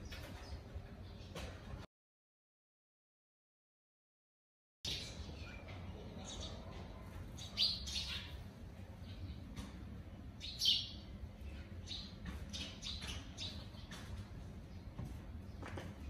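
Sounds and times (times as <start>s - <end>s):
sparrows chirping: 0.0s - 1.6s, 4.9s - 16.0s.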